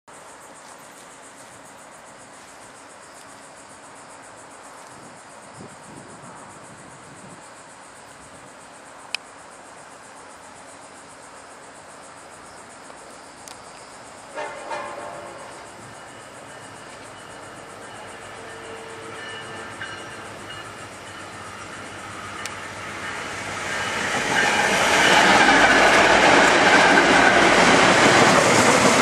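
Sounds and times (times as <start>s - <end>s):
insects chirring: 0.1s - 29.0s
distant train horn: 14.3s - 25.9s.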